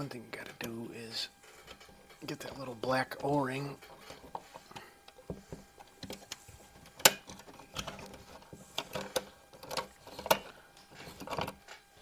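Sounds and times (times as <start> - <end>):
clicks of metal and plastic parts: 6.0 - 11.9.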